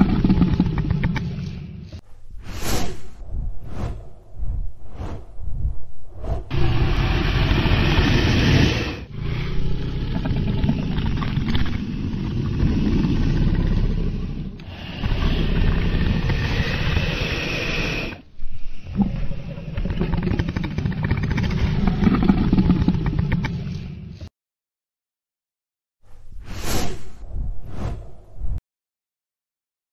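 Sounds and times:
dragon roaring: 6.5s - 18.2s.

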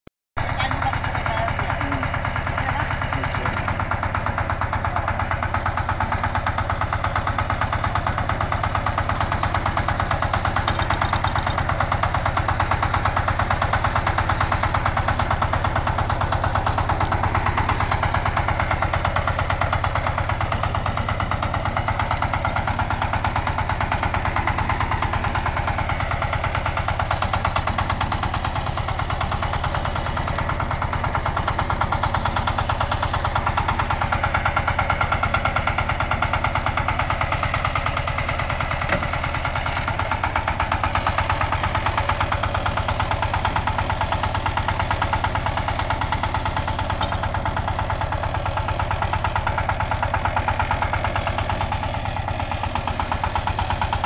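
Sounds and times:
diesel engine chugging: 0.4s - 54.0s.

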